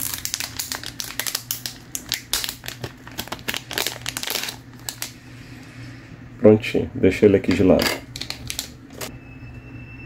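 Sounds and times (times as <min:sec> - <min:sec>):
packaging crinkling and rustling: 0:00.0 - 0:05.2.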